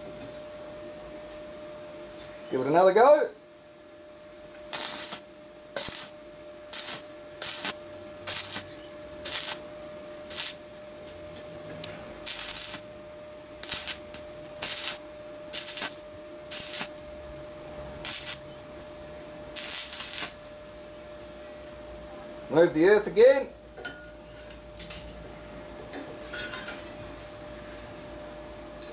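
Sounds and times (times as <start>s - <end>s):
welding arc hissing: 4.6s - 20.8s.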